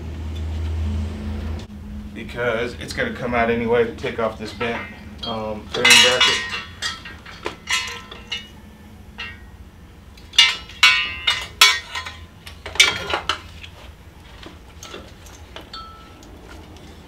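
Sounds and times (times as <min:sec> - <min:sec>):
metal tools clinking and clanking: 0:04.0 - 0:09.6, 0:10.2 - 0:17.0.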